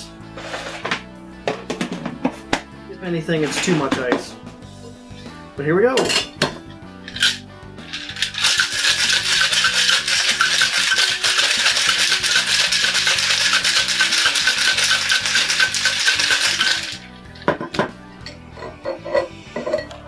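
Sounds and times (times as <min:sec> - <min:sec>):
ice rattling in cocktail shaker: 0:07.1 - 0:17.5.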